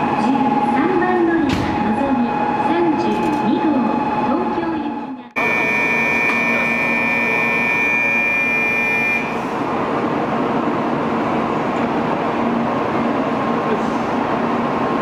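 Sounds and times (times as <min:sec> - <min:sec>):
hum of standing train: 0:00.0 - 0:15.0
high electronic tone: 0:05.4 - 0:09.3.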